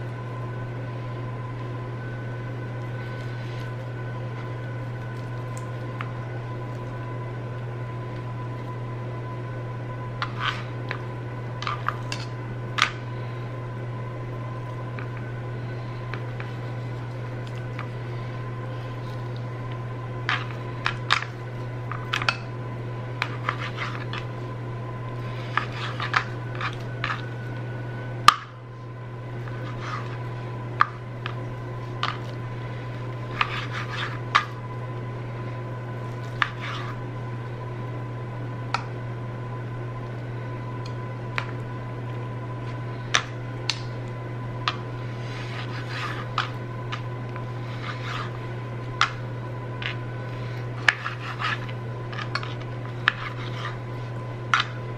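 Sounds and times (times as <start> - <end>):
low hum: 0.0 - 54.9.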